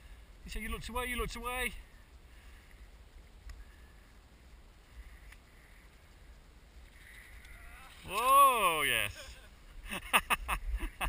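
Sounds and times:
light ticks: 0:02.6 - 0:03.7, 0:05.1 - 0:06.2.

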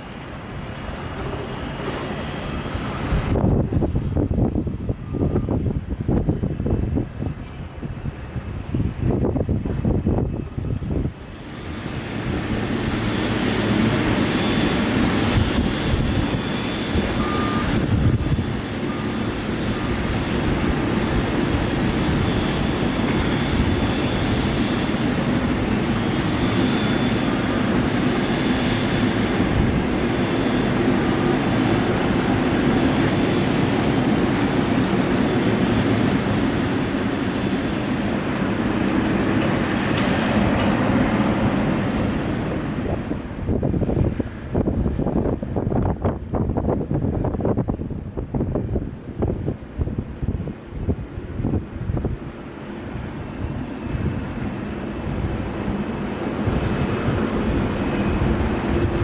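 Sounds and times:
faint high engine whine: 0:00.0 - 0:59.0
jet engines rumbling: 0:00.0 - 0:59.0.

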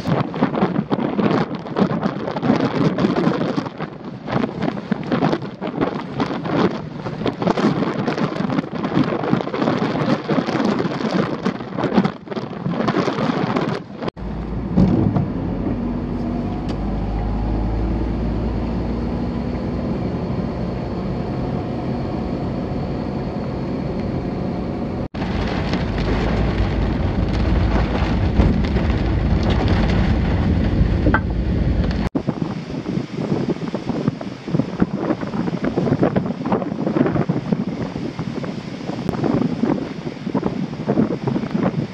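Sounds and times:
heavy storm surf: 0:00.0 - 0:41.9
vehicle driving on wet roads: 0:00.0 - 0:41.9
wind gusting across microphone: 0:00.0 - 0:41.9
rain: 0:25.1 - 0:41.9.

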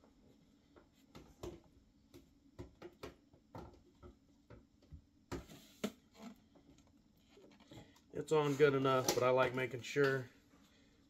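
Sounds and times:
hose clicking and scraping on plastic: 0:05.4 - 0:10.2.

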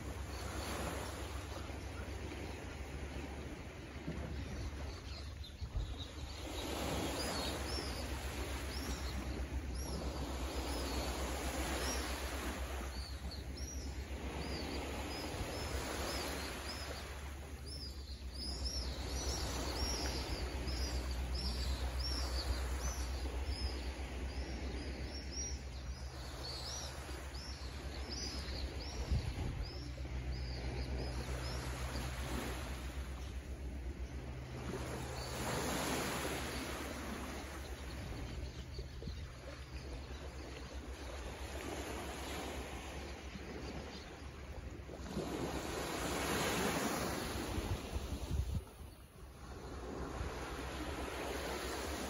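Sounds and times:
birds chirping: 0:00.1 - 0:44.5
low steady rumble: 0:27.6 - 0:41.8.

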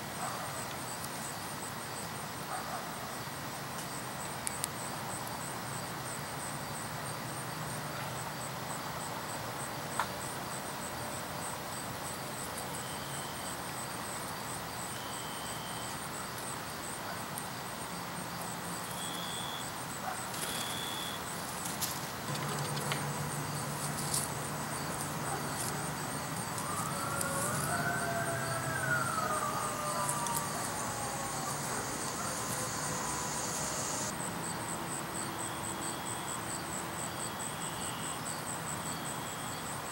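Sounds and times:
insect trill: 0:03.2 - 0:39.9
faint siren wailing: 0:22.3 - 0:34.1.

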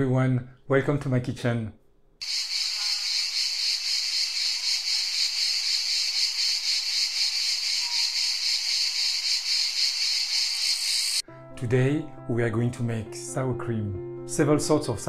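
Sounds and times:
insects chirring: 0:02.2 - 0:11.2.

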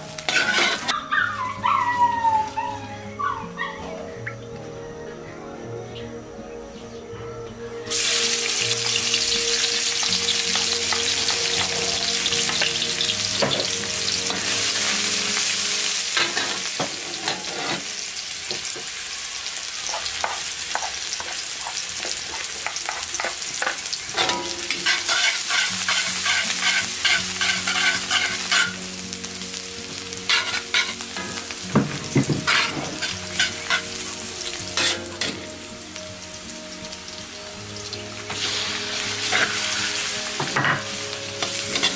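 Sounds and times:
onion sizzling in hot oil: 0:00.0 - 0:01.0, 0:07.8 - 0:41.9
spatula scraping a wok: 0:00.1 - 0:01.0, 0:16.0 - 0:18.0, 0:19.9 - 0:28.9, 0:30.3 - 0:31.4, 0:32.0 - 0:34.1, 0:34.7 - 0:35.5, 0:38.3 - 0:40.8, 0:41.4 - 0:41.9.

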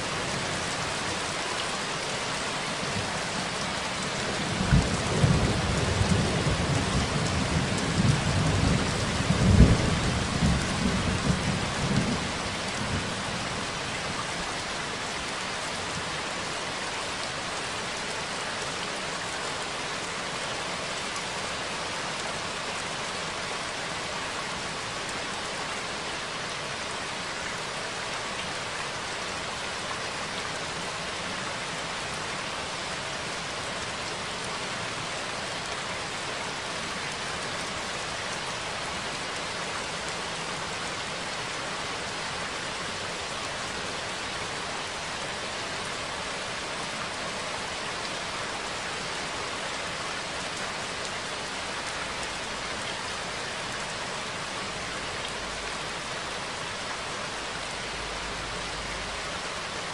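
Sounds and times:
steady rain: 0:00.0 - 0:59.9
low rumble of thunder: 0:04.6 - 0:13.2.

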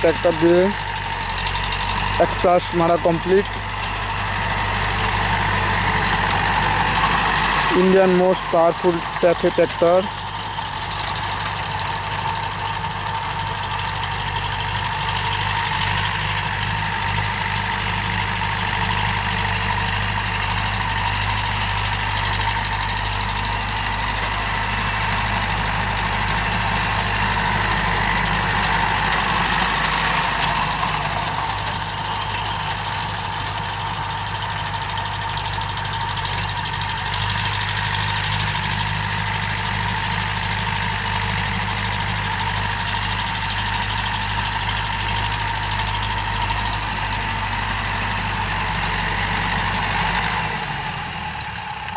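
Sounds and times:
tractor diesel engine under load: 0:00.0 - 0:51.9.

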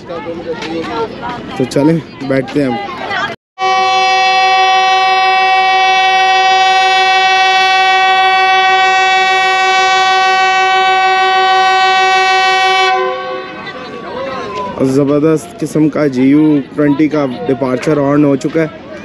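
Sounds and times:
locomotive air horn blast: 0:03.6 - 0:14.0.

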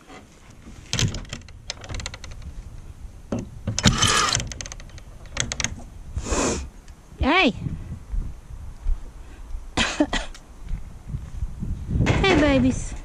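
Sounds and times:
tool clicking and rattling on latch: 0:00.6 - 0:05.9.

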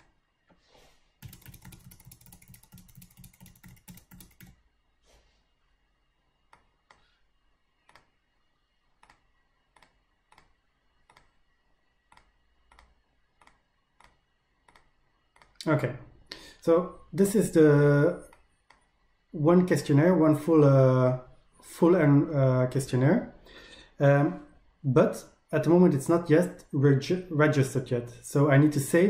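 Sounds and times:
computer mouse clicks: 0:01.2 - 0:04.6, 0:07.8 - 0:08.2, 0:09.0 - 0:11.5, 0:12.1 - 0:15.7.

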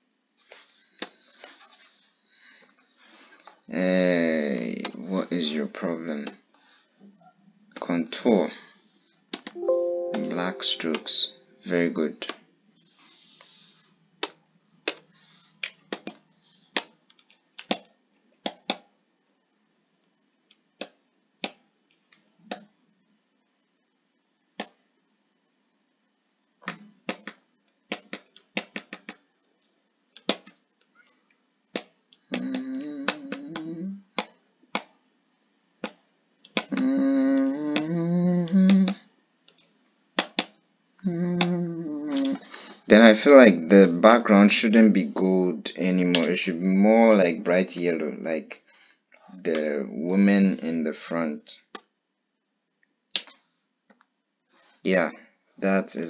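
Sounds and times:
person humming a tune: 0:09.6 - 0:11.4, 0:32.3 - 0:34.1, 0:36.7 - 0:39.0, 0:41.0 - 0:42.5.

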